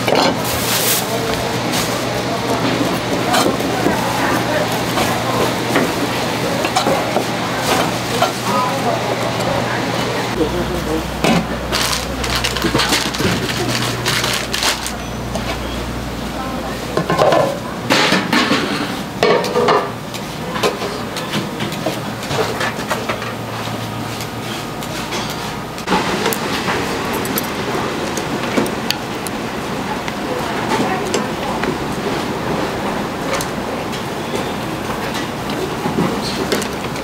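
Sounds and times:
steady background noise: 0.0s - 37.0s
dishes and utensils clattering: 17.0s - 23.4s, 25.0s - 25.5s, 26.7s - 27.6s.

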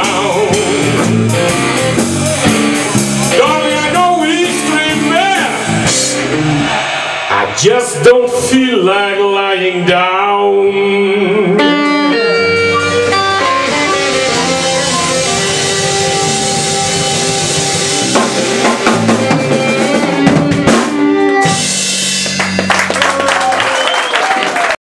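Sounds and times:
live blues band playing: 0.0s - 23.4s
harmonica: 11.6s - 21.9s.

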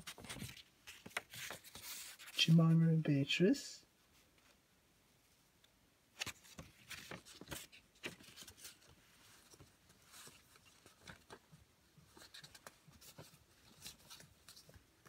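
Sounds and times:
paper leaflet rustling and crinkling: 0.0s - 2.6s, 6.2s - 15.0s.

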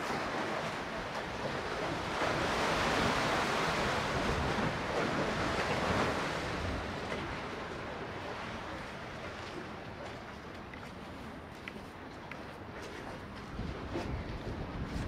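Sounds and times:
waves washing on concrete: 0.0s - 15.0s
wind rumbling on microphone: 0.0s - 15.0s.

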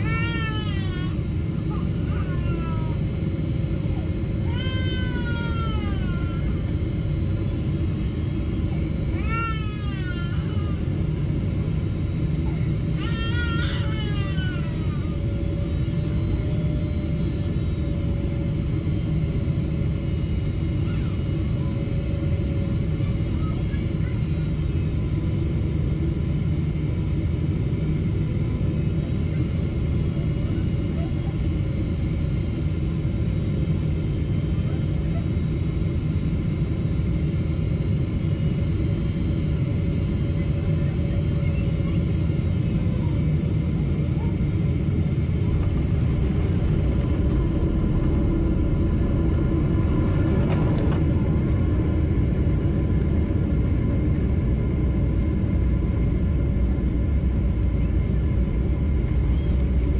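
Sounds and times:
airliner cabin roar: 0.0s - 59.9s
high wailing cries: 13.0s - 15.3s
faint whining tones: 39.3s - 56.1s
rushing air: 45.8s - 52.0s.

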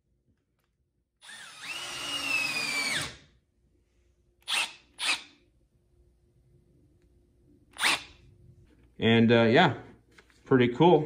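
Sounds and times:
cordless drill whining: 1.2s - 3.2s, 4.4s - 5.4s, 7.7s - 8.1s.

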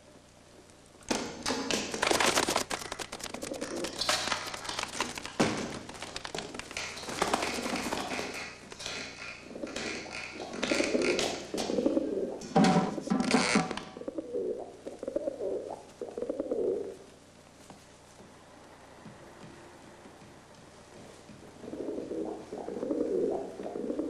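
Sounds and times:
rapid taps and clattering knocks: 1.1s - 11.7s
pigeons cooing: 3.2s - 4.1s, 9.4s - 12.6s, 13.9s - 17.1s, 21.5s - 24.0s.

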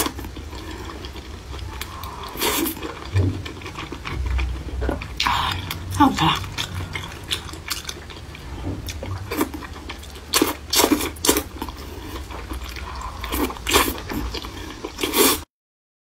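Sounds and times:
noodles slurped: 0.0s - 4.2s, 6.2s - 15.4s
wet chewing: 0.0s - 15.4s.

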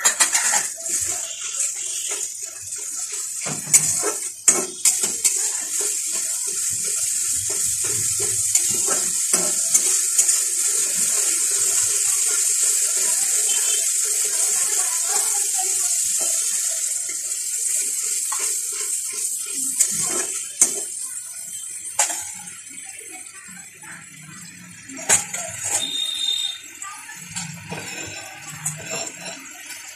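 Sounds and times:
spatula stirring and scraping: 0.0s - 22.1s
onion sizzling in hot oil: 0.0s - 29.9s
spatula knocking pan: 1.3s - 13.8s.

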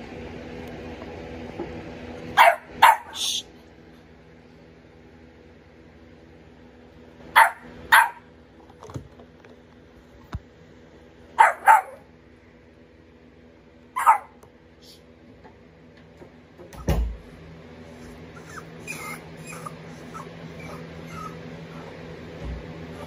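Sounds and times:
puppy barking: 2.3s - 3.3s, 7.3s - 8.3s, 11.4s - 12.1s, 14.0s - 14.4s, 18.4s - 22.0s.

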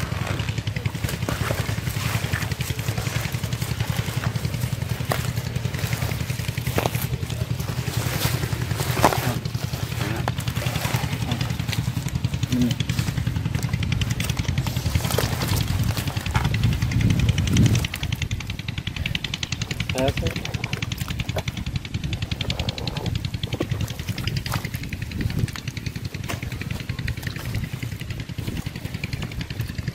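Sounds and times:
small engine droning: 0.0s - 29.9s
wet plants and fish handled: 0.0s - 29.9s.

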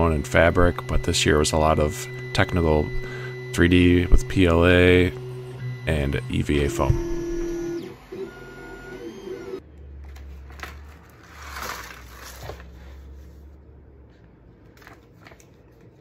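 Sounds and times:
stepper motors whining: 0.0s - 9.6s
plastic bag rustling: 10.2s - 13.2s.

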